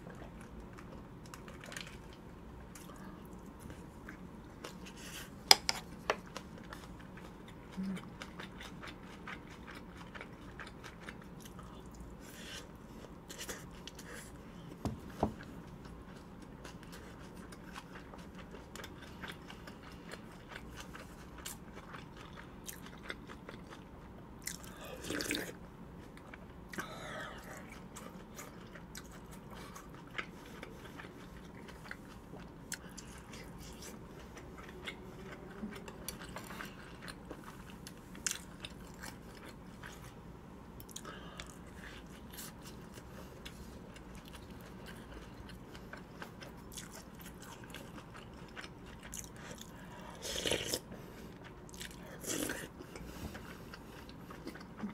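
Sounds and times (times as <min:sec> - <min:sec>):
close chewing with wet mouth clicks: 0:00.0 - 0:14.3, 0:15.7 - 0:26.8, 0:40.8 - 0:54.9.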